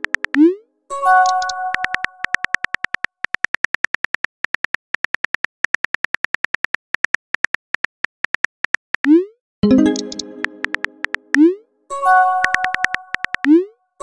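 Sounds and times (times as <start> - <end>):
phone keyboard clicks: 0.0 - 0.4, 1.2 - 9.1, 9.9 - 11.4, 12.4 - 13.5
electronic message chime: 9.6 - 11.1.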